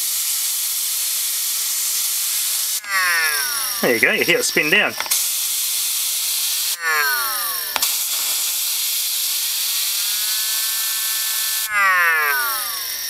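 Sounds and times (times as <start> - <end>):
compressed air hissing: 0.0 - 11.7
multi-pitched tone from tweeter: 2.8 - 5.1, 6.6 - 8.6.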